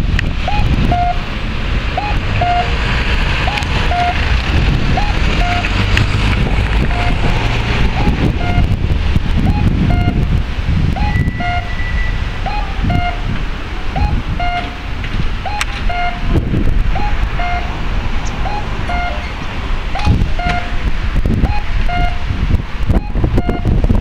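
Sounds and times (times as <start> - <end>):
low traffic rumble: 0.0 - 24.0
electronic cuckoo crossing signal: 0.4 - 1.2, 2.0 - 2.7, 3.5 - 4.2, 5.0 - 5.8, 6.9 - 7.2, 8.0 - 8.8, 9.4 - 10.2, 10.9 - 13.3, 13.9 - 14.8, 15.4 - 19.4, 20.0 - 20.8, 21.4 - 22.2, 22.9 - 23.8.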